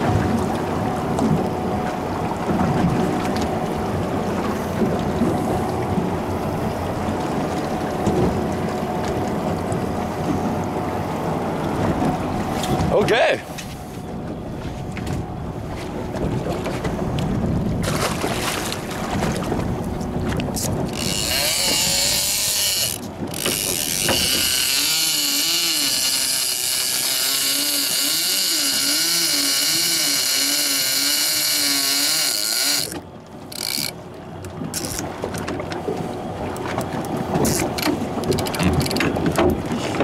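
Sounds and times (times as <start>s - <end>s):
boat noise: 0.0s - 40.0s
fishing reel drag clicker buzzing: 20.6s - 34.0s.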